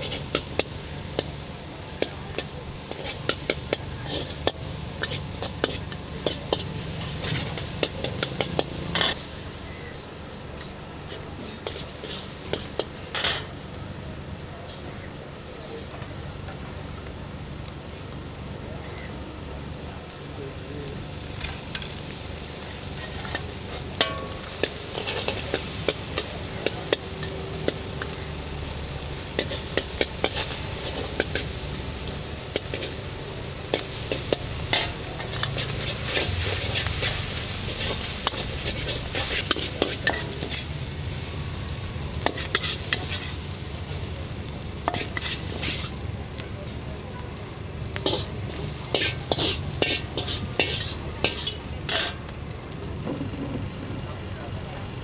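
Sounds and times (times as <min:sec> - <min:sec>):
noodles sizzling in a wok: 0:00.0 - 0:53.1
metal spatula clanking on wok: 0:23.0 - 0:28.1, 0:48.0 - 0:48.3, 0:48.9 - 0:52.2.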